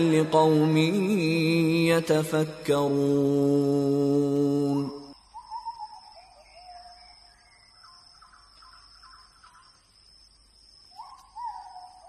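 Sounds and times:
faint bird calls: 0:04.9 - 0:10.0, 0:10.8 - 0:12.0.

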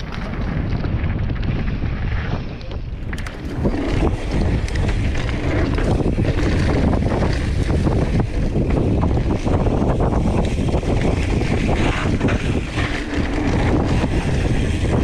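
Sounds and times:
bike rattles and clicks: 0:00.0 - 0:15.0
wind rush over microphone: 0:00.0 - 0:15.0
tyres running over dirt: 0:03.0 - 0:15.0.

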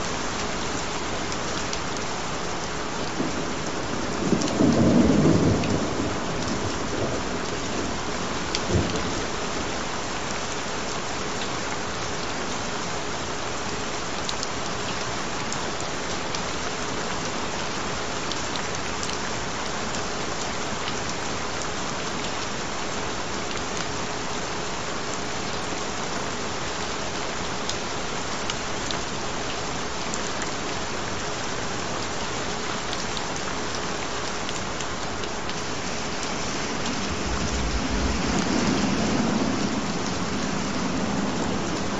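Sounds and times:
steady rain falling: 0:00.0 - 0:41.9
thunder rumble: 0:03.2 - 0:09.3, 0:35.7 - 0:41.9.

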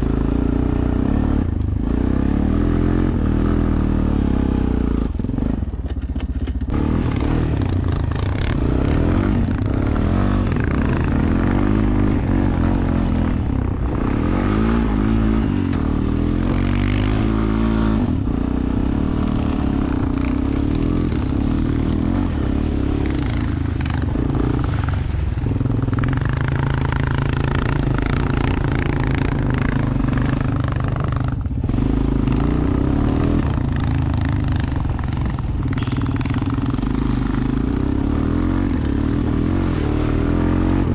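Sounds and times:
atv engine revving: 0:00.0 - 0:40.9.

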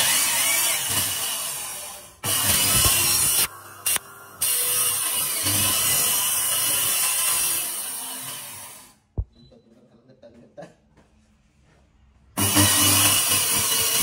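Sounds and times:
power saw cutting: 0:00.0 - 0:09.0, 0:12.4 - 0:14.0.

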